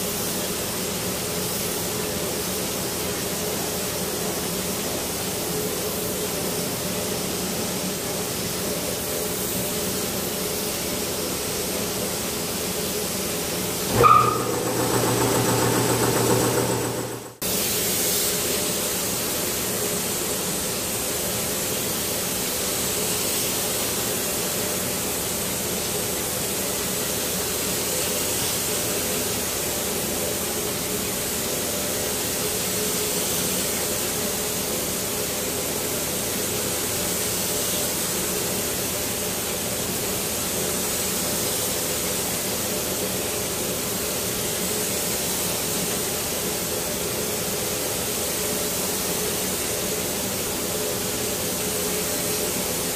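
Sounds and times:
air compressor humming: 13.8s - 17.8s.

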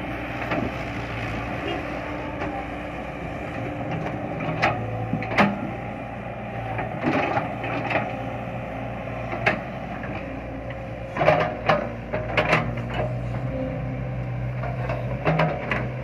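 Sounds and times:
excavator diesel engine running: 0.0s - 16.0s
excavator bucket clanks: 11.1s - 13.2s, 14.6s - 16.0s.

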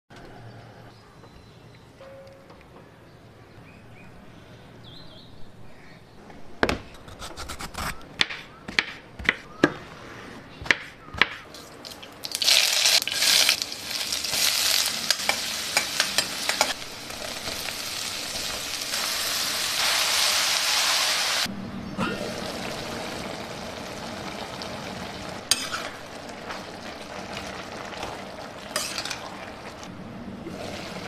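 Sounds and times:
vegetables sizzling in oil: 11.8s - 21.5s, 22.4s - 29.9s.

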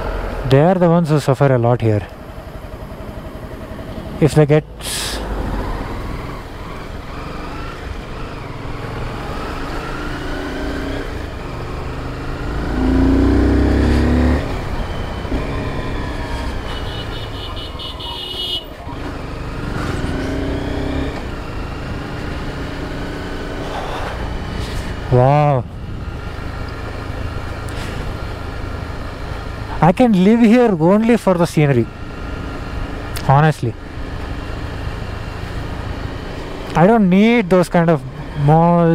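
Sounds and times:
motorcycle engine revving: 4.8s - 29.8s.

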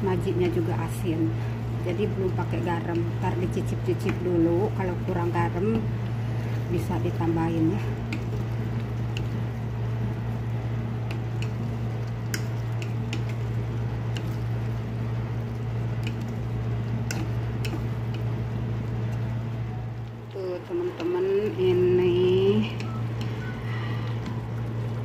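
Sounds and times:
low hum: 0.0s - 25.0s
sauce bubbling in a frying pan: 0.0s - 25.0s
wooden spatula stirring: 5.8s - 19.5s, 20.6s - 25.0s.

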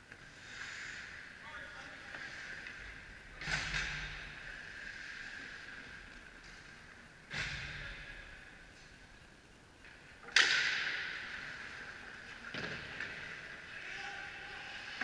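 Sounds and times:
steady rink hum: 0.0s - 15.0s
echoing hockey puck cracks: 10.3s - 11.8s.

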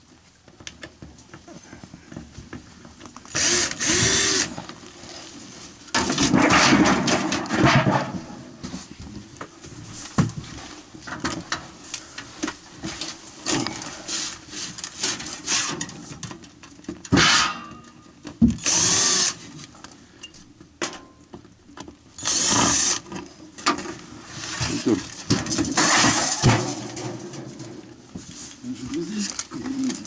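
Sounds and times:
cordless drill running: 3.3s - 4.6s, 18.6s - 19.4s, 22.2s - 23.0s
clattering and knocking of metal: 5.9s - 8.4s, 14.8s - 18.6s, 20.8s - 21.9s, 24.6s - 28.3s.

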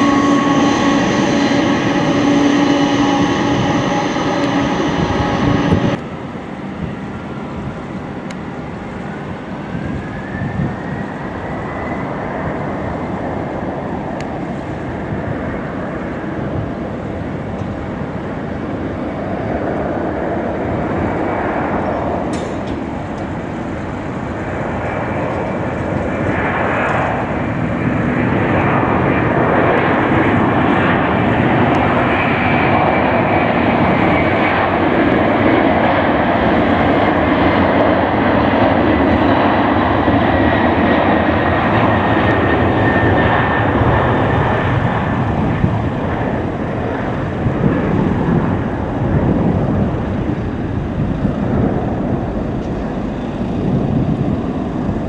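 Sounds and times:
faint high engine whine: 0.0s - 55.0s
jet engines spooling up: 0.0s - 55.0s.

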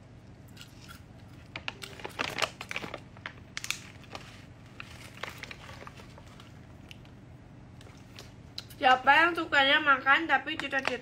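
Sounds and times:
crinkling and crackling: 1.3s - 8.8s, 10.4s - 11.0s.

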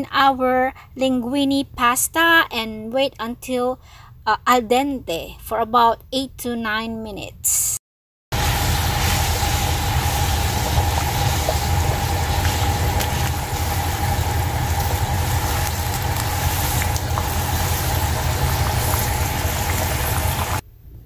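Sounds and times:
water boiling in a pot: 8.4s - 20.6s.

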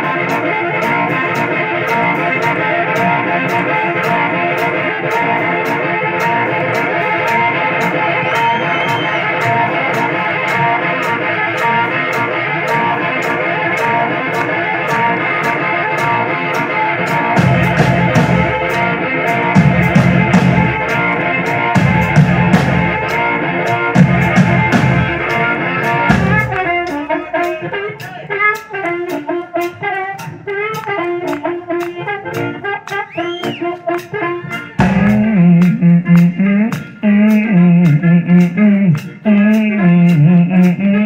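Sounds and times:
blues band playing live: 0.0s - 41.0s
harmonica solo with bent notes: 0.0s - 41.0s
sparse drum beat: 0.8s - 28.2s, 34.8s - 36.2s.

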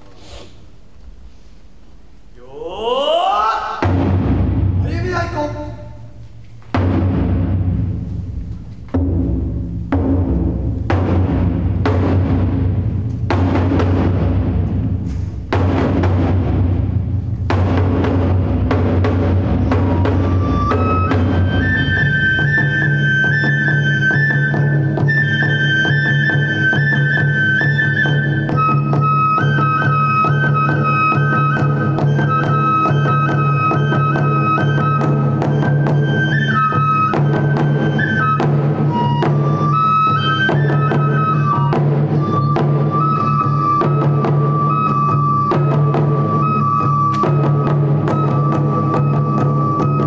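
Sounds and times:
taiko drumming: 2.5s - 50.0s
bamboo flute melody: 17.5s - 50.0s.

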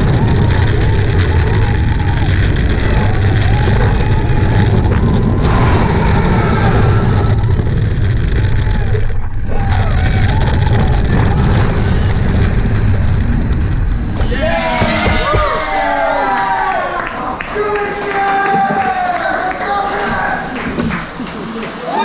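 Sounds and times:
wind rushing over camera: 0.0s - 14.3s
roller coaster rumbling on track: 0.0s - 22.0s.

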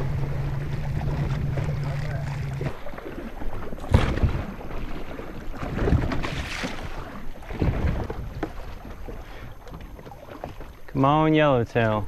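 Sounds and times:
wind buffeting microphone: 0.0s - 9.6s
water slapping boat hull: 0.0s - 12.0s.

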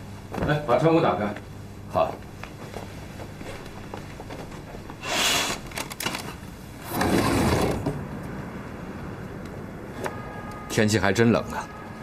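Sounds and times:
window sliding open: 6.8s - 8.0s.

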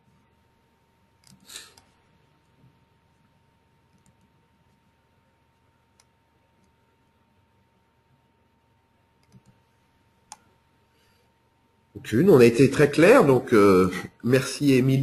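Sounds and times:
faint clicks: 3.9s - 4.4s, 9.2s - 9.6s.

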